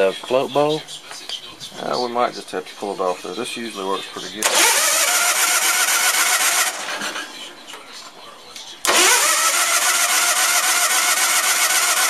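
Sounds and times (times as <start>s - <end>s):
engine starter cranking: 4.4s - 7.3s, 8.8s - 12.0s.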